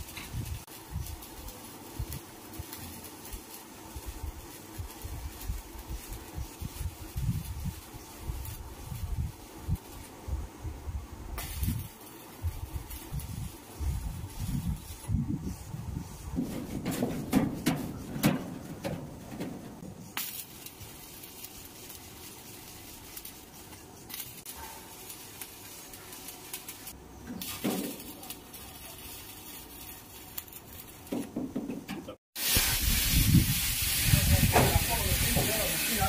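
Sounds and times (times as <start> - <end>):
plasma cutter hissing: 0.0 - 31.3, 32.4 - 36.0
welding arc crackling: 0.0 - 36.0
metallic clanks: 16.4 - 19.8.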